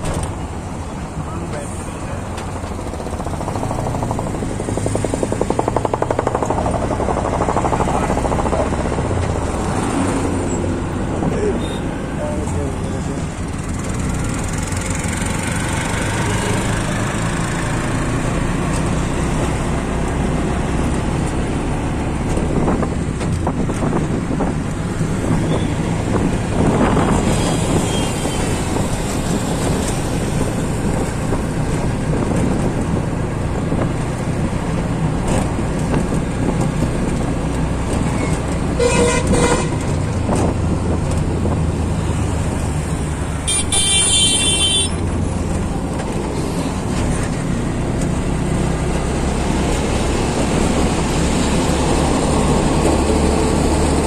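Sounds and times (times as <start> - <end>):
auto-rickshaw engine: 0.0 - 54.0
road noise: 0.0 - 54.0
vehicle horn honking: 38.8 - 39.8, 43.5 - 45.0.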